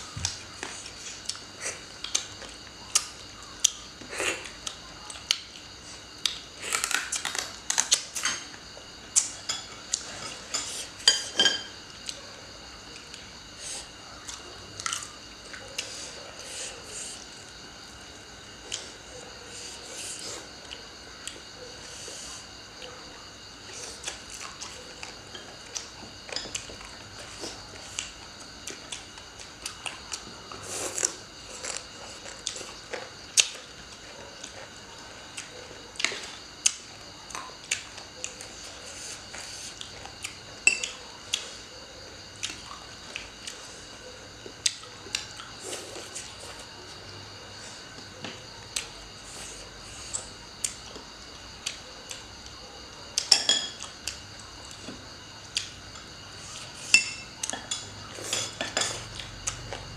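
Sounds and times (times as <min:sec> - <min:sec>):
chopsticks and spoons clicking on plates: 0:09.2 - 0:12.2, 0:40.6 - 0:41.0, 0:53.2 - 0:54.2, 0:56.9 - 0:59.3
person chewing food: 0:13.0 - 0:17.4, 0:23.6 - 0:41.7, 0:42.3 - 0:47.0.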